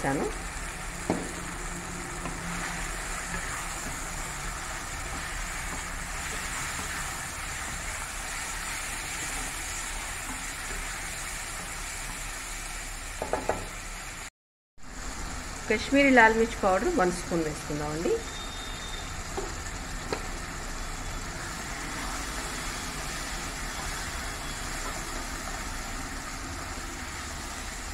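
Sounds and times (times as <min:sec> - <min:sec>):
food sizzling in oil: 0:00.0 - 0:27.9
wooden spatula stirring: 0:01.0 - 0:12.1.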